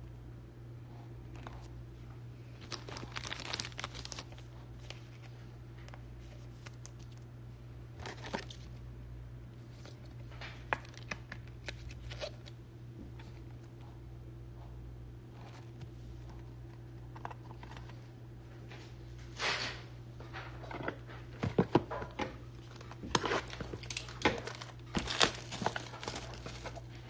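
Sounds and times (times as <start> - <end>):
plastic crinkling and clicking: 2.6 - 7.2, 9.8 - 12.6, 20.3 - 27.0.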